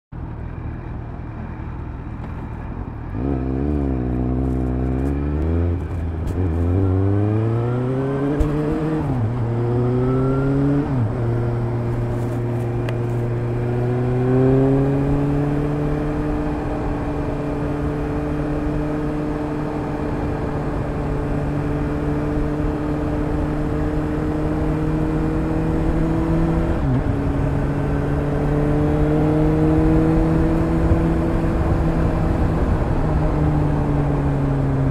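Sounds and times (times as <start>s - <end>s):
motorcycle engine revving: 3.0s - 34.9s.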